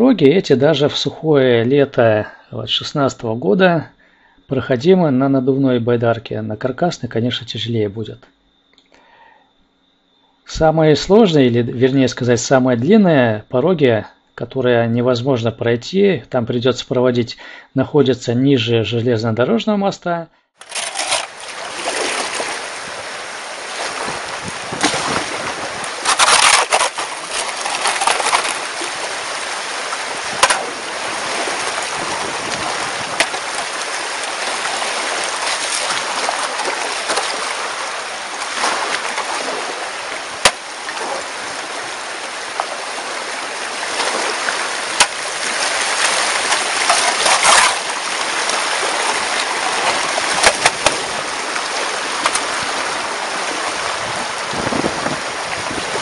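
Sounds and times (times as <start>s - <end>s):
water rushing and splashing: 20.6s - 56.0s
sharp knocks: 30.3s - 30.8s, 33.1s - 33.6s, 40.4s - 40.7s, 45.0s - 45.2s.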